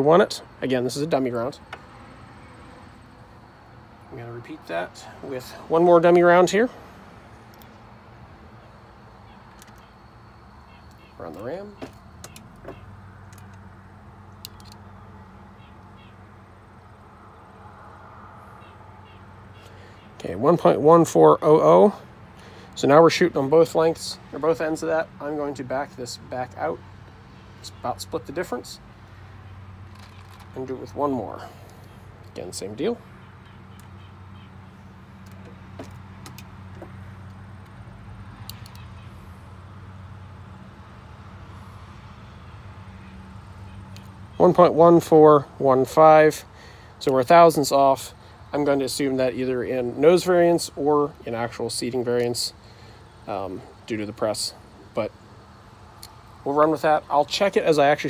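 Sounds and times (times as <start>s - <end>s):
light handling clicks: 14.3s - 14.9s, 38.4s - 38.9s.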